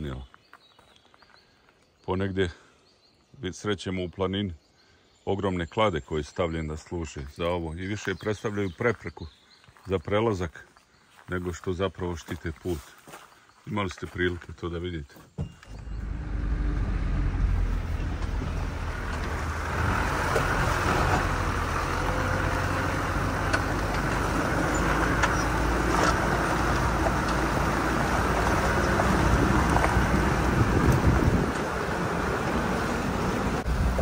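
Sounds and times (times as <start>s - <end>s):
tyres crunching on gravel: 0.0s - 1.9s, 7.2s - 34.0s
low engine hum: 15.4s - 34.0s.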